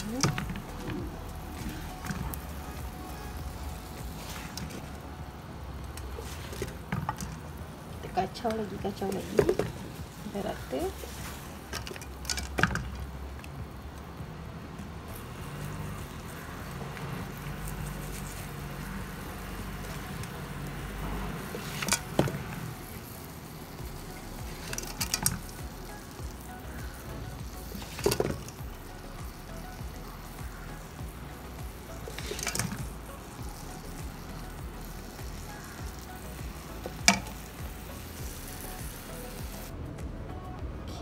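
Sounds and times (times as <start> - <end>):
sugar syrup sizzling: 0.0 - 40.5
background music: 0.0 - 41.0.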